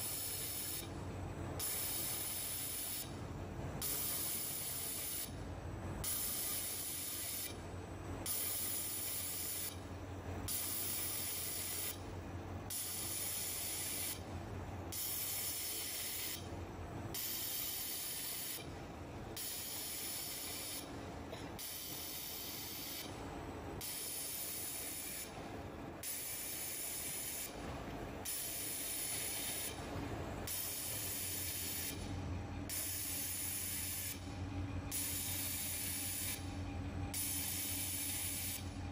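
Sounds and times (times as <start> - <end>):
laser welding hiss: 0.0 - 0.9, 1.6 - 3.1, 3.8 - 5.3, 6.1 - 7.5, 8.3 - 9.7, 10.5 - 12.0, 12.7 - 14.2, 15.0 - 16.4, 17.2 - 18.6, 19.4 - 20.9, 21.6 - 23.1, 23.8 - 25.3, 26.0 - 27.5, 28.3 - 29.8, 30.5 - 32.0, 37.2 - 38.6
low machine hum: 29.7 - 38.9.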